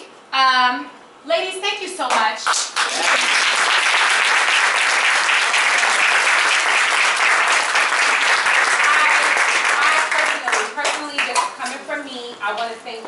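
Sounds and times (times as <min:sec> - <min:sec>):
audience applauding: 0:02.5 - 0:11.4.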